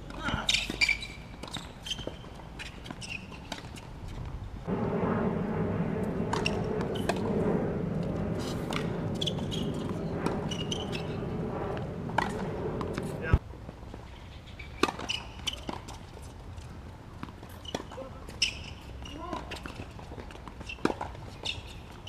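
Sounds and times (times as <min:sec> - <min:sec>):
steady machine drone: 0:04.7 - 0:13.4.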